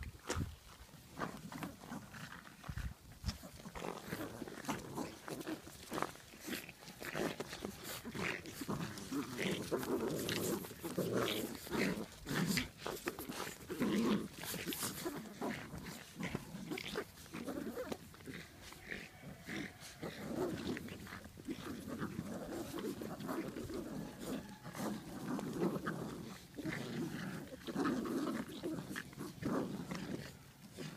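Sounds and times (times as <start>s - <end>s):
puppies growling in play: 0.0s - 30.9s
scuffs and rustles: 0.1s - 30.9s.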